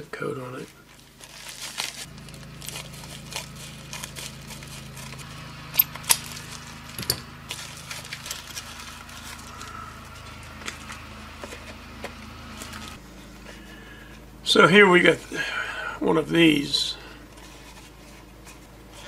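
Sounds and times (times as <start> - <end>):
plastic pouch crinkling: 0.6 - 5.2, 6.2 - 11.6.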